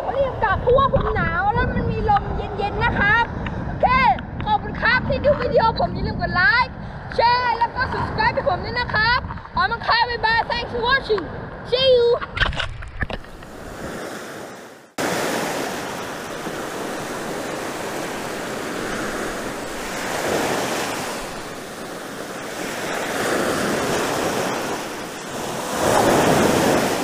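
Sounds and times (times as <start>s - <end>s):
sea surf washing up a beach: 13.5s - 27.0s.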